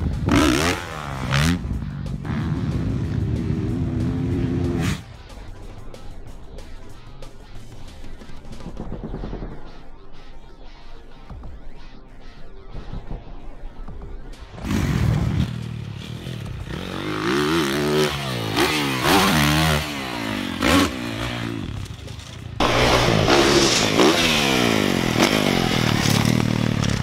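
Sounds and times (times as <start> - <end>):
dirt bike engines revving: 0.0 - 5.1, 14.6 - 27.0.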